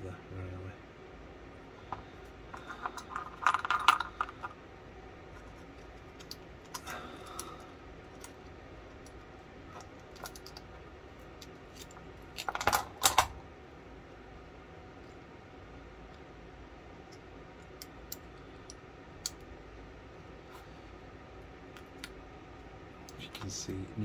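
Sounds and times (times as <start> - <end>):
metal parts clattering: 2.5 - 4.5, 11.7 - 13.3
metal gun parts clicking and clinking: 2.5 - 4.6.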